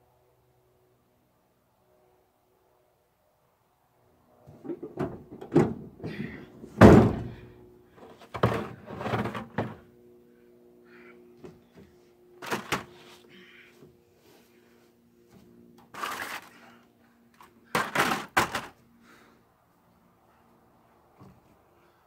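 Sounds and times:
faint steady hum: 1.7s - 22.0s
tailgate dropping open with clank: 4.5s - 7.5s.

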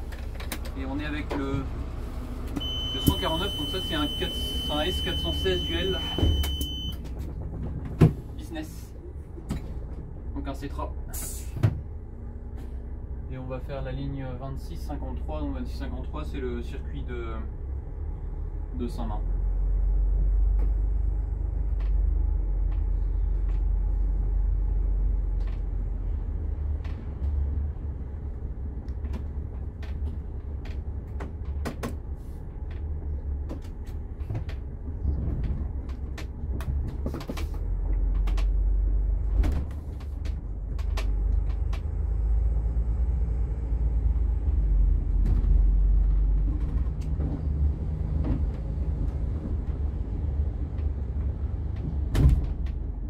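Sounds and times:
diesel coach engine rumble: 0.0s - 53.0s.

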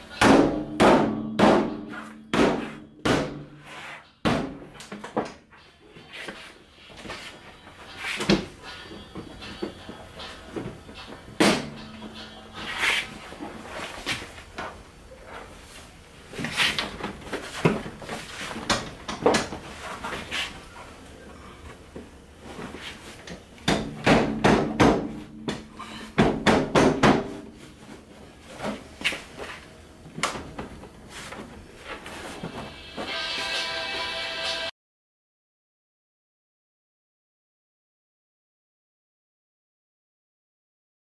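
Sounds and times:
music: 0.0s - 14.0s, 32.4s - 34.7s.

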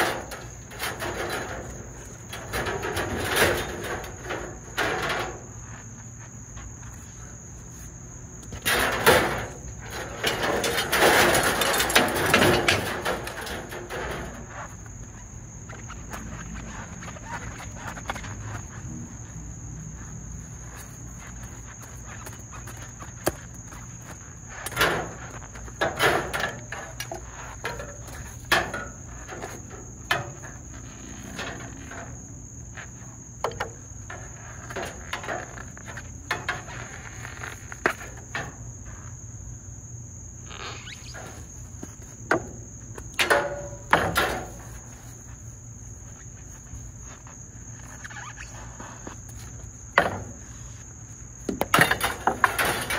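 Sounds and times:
crickets chirring: 0.0s - 52.9s
copper pipe clicks and scrapes: 8.4s - 19.3s.

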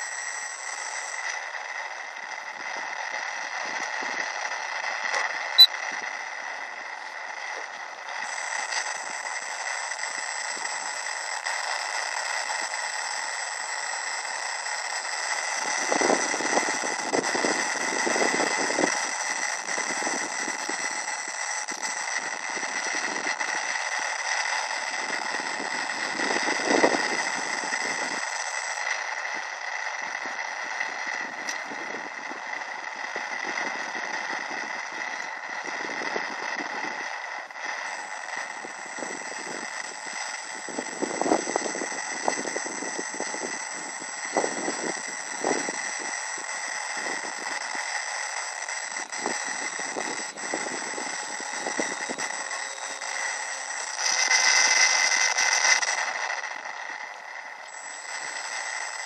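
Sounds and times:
steady hiss: 0.0s - 59.0s
thin whining tones: 0.0s - 59.0s
wind gusting on microphone: 49.0s - 52.4s.

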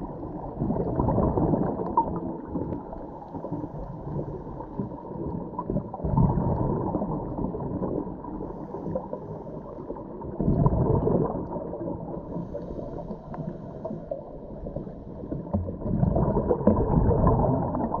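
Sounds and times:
diver's bubbles gurgling: 0.0s - 18.0s
low underwater rumble: 0.0s - 18.0s.

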